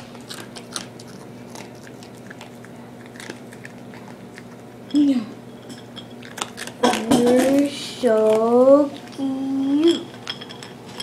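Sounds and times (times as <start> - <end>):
dog crunching dry kibble: 0.0 - 4.9, 5.9 - 9.3.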